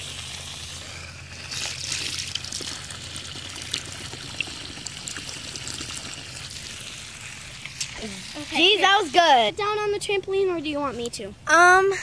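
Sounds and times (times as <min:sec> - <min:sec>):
hose water splattering on grass: 0:00.0 - 0:09.5.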